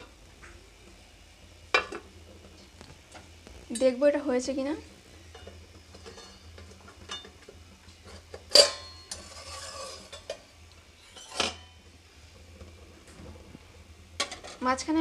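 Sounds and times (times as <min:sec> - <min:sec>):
metal scraping on metal: 0:05.4 - 0:07.3, 0:08.0 - 0:10.4, 0:11.0 - 0:11.8.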